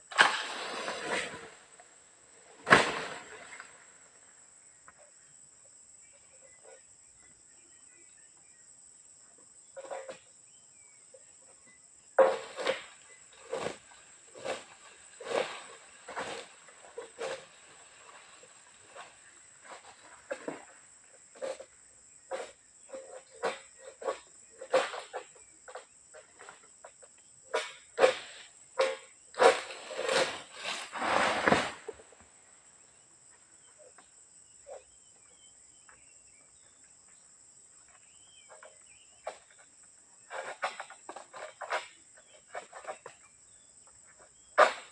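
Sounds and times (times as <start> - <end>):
insects droning: 0.0 - 44.9
sickle cracking through frond: 0.1 - 1.4
faint chirps: 3.4 - 14.0.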